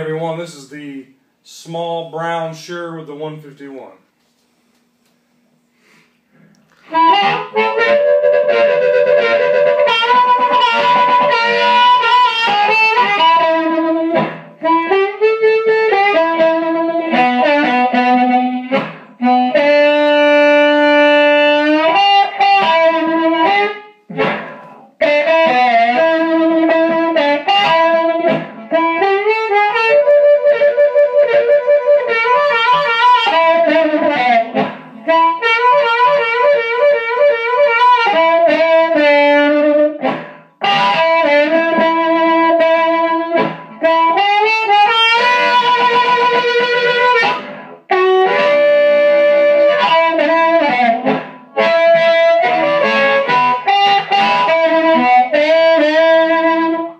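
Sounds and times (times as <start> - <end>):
short breaths: 5.6 - 7.0
amplified blues harmonica: 6.8 - 56.9.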